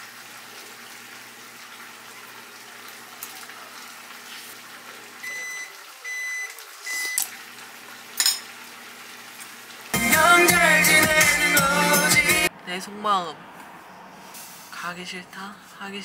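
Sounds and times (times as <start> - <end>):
appliance beeps: 5.2 - 7.3.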